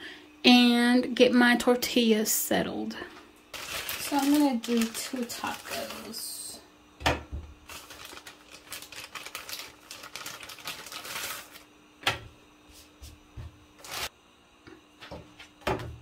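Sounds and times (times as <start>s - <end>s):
plastic bag crinkling: 3.5s - 6.4s, 7.6s - 11.7s, 13.8s - 14.1s.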